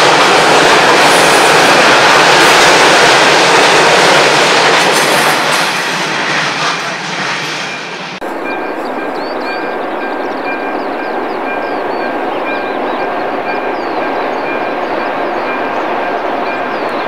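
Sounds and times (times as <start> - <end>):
freight wagons rumbling on rails: 0.0 - 17.0
birds chirping: 8.2 - 17.0.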